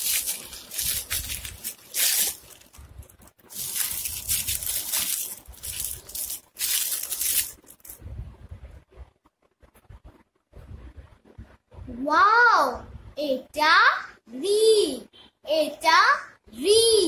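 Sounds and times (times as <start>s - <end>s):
foil crinkling and rustling: 0.0s - 8.0s.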